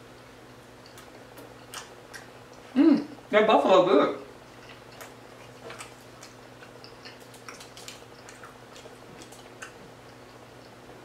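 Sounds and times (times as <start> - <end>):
close chewing: 0.5 - 2.8, 4.3 - 10.9
wet mouth clicks: 4.6 - 10.4.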